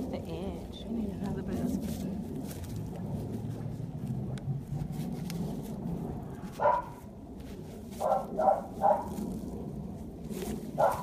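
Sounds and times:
dog barking: 6.6s - 7.0s, 8.0s - 9.2s, 10.8s - 11.0s.

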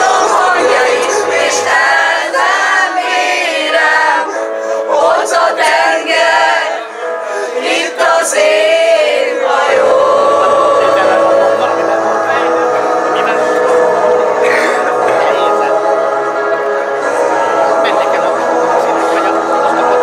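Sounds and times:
group singing into microphones: 0.0s - 20.0s.

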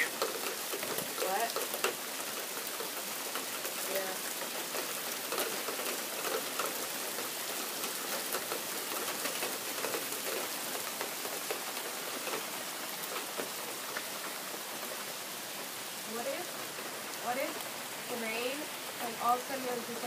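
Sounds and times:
heavy rain falling: 0.0s - 20.0s
raindrops clicking on surfaces: 0.0s - 20.0s.

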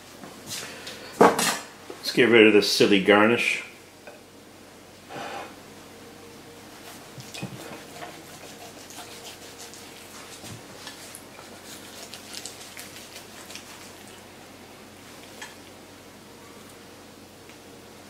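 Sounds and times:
knife cutting crisp skin: 7.2s - 14.1s.

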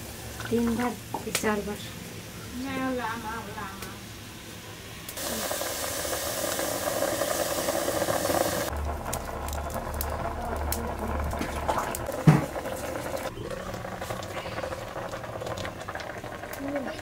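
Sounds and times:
water bubbling in pot: 5.2s - 17.0s.

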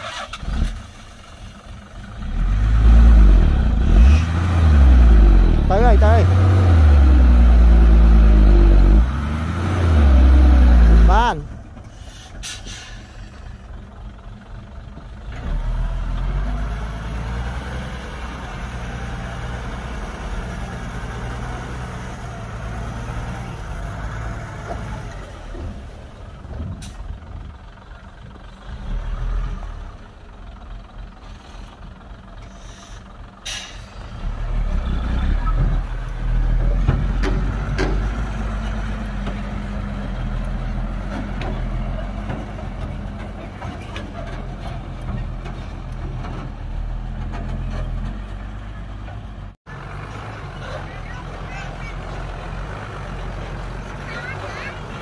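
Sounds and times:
truck diesel engine under load: 0.0s - 55.0s.

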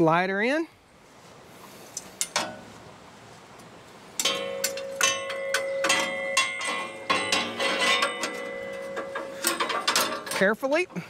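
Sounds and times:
steady metallic ring: 4.2s - 10.5s
saw blade clinking and scraping metal: 4.2s - 10.6s.

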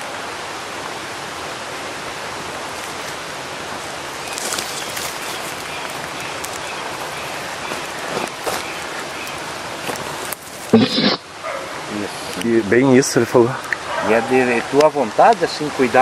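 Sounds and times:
waterfall rushing: 0.0s - 16.0s
faint crackles: 4.2s - 11.3s.

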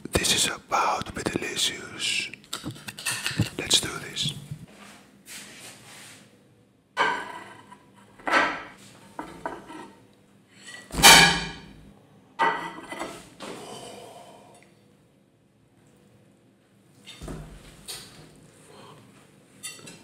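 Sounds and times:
plate clattering on table: 7.0s - 9.9s, 12.4s - 13.2s.

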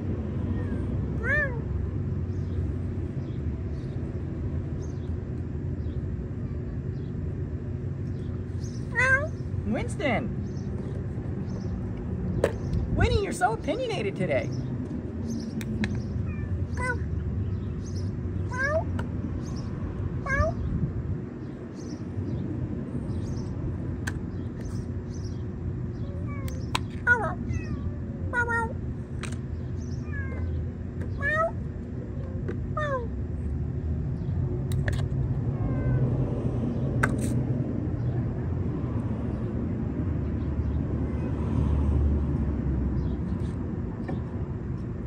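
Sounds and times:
low background rumble: 0.0s - 41.3s
cat meowing: 0.5s - 1.7s, 8.9s - 9.4s, 18.5s - 18.9s, 20.3s - 20.6s, 26.0s - 28.7s, 30.0s - 30.6s, 31.2s - 33.1s, 35.6s - 36.1s, 41.0s - 41.5s.

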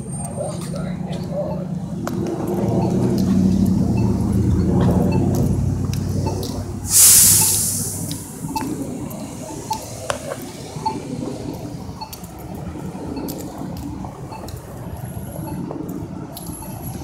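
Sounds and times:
street traffic passing: 0.0s - 17.0s
air hiss burst: 6.9s - 8.6s.

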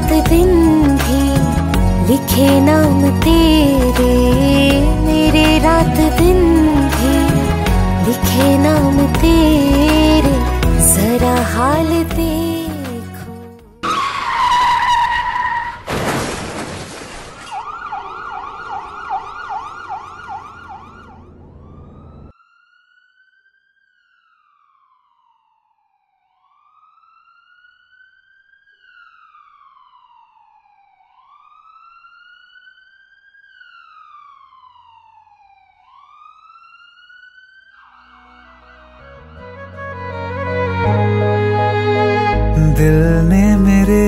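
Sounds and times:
emergency vehicle siren: 13.8s - 15.9s, 17.4s - 43.3s
tyre screech: 13.8s - 15.9s
car crash: 13.8s - 22.3s.

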